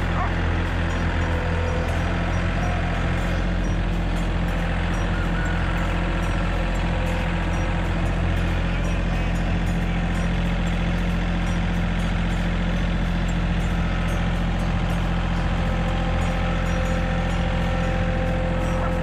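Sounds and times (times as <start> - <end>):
engine running: 0.0 - 19.0.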